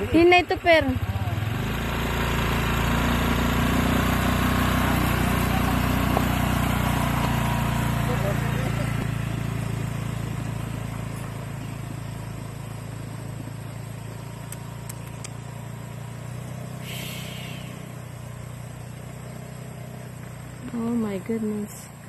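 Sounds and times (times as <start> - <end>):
small motorcycle engine running: 0.0 - 22.0
tyres over gravel: 4.6 - 11.7.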